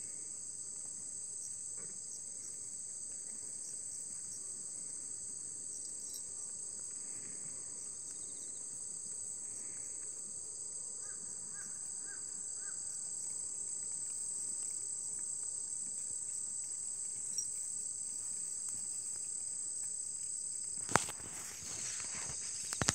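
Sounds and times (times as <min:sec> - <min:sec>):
insect chorus trilling: 0:05.7 - 0:06.3, 0:11.0 - 0:13.5.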